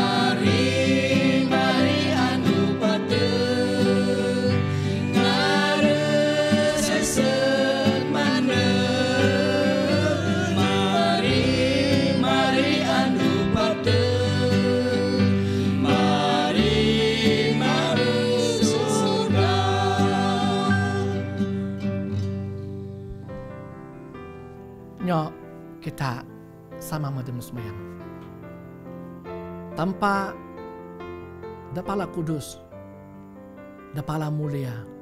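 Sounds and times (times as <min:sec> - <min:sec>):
group singing in harmony: 0:00.0 - 0:22.5
strummed acoustic guitar: 0:00.0 - 0:23.4.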